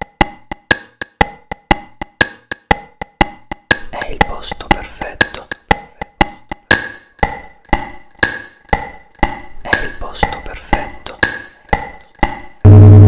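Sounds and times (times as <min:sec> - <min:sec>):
clock ticking: 0:00.0 - 0:12.7.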